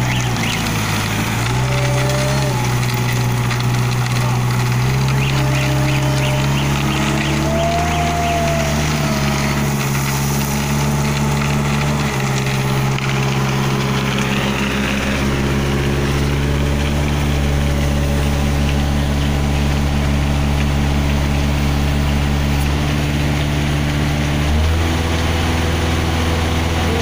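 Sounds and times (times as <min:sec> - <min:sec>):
diesel engine running: 0:00.0 - 0:27.0.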